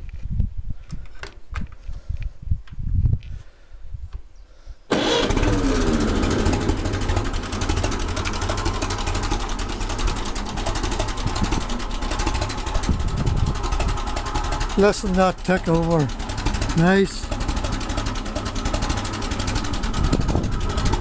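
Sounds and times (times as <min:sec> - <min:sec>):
tractor engine ticking over: 0:04.9 - 0:21.0.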